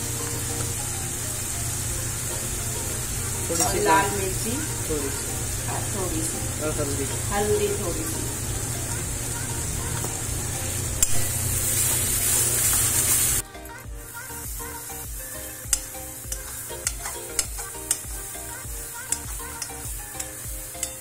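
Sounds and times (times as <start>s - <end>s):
background music: 0.0s - 21.0s
spices sizzling in hot oil: 0.0s - 21.0s
metal spoon tapping a pan: 3.5s - 3.9s, 15.6s - 18.3s, 19.0s - 21.0s.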